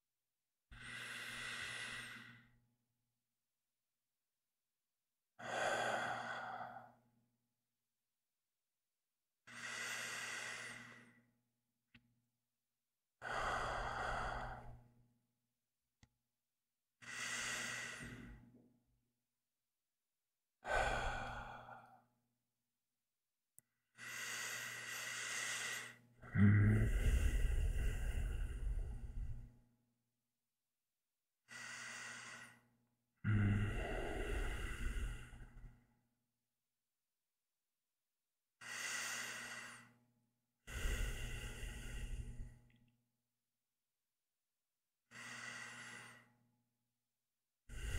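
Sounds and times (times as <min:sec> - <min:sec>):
man breathing in deep sleep: 0:00.8 - 0:02.6, 0:05.4 - 0:07.0, 0:09.5 - 0:11.3, 0:13.2 - 0:14.9, 0:17.0 - 0:18.5, 0:20.6 - 0:22.1, 0:24.0 - 0:29.6, 0:31.5 - 0:35.8, 0:38.6 - 0:40.0, 0:40.6 - 0:42.6, 0:45.1 - 0:46.4, 0:47.7 - 0:47.9.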